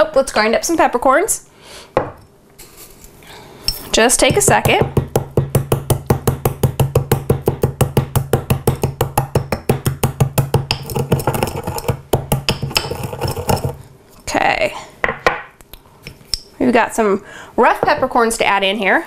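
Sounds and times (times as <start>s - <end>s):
pestle pounding in a mortar: 4.1s - 13.8s.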